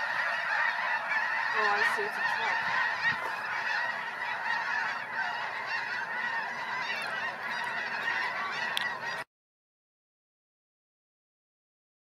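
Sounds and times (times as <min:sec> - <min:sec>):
geese honking: 0:00.0 - 0:09.3.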